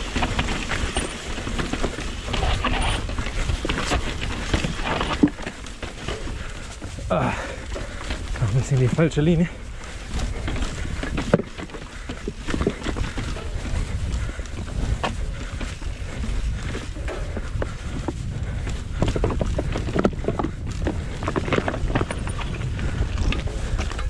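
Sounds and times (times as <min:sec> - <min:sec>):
bike tyres knocking stones: 0:00.0 - 0:24.0
wind on microphone: 0:09.5 - 0:24.0.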